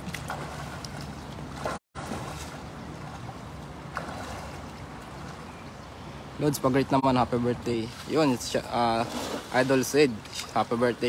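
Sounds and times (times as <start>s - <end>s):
water sloshing and dripping: 0.0s - 5.8s.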